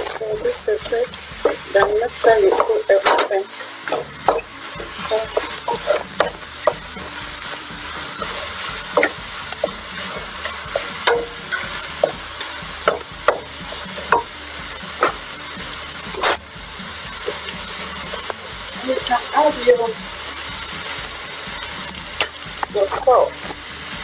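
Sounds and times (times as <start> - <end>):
meat sizzling in a pot: 0.0 - 24.0
wooden spoon knocking pot: 1.3 - 15.3.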